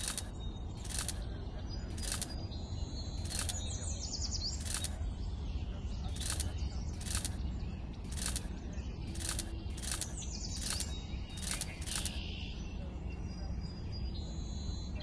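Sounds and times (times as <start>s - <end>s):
faint bird chirps: 0.0s - 15.0s
seeds dropping into sand clicks: 6.2s - 7.4s, 8.1s - 8.5s, 9.1s - 12.2s.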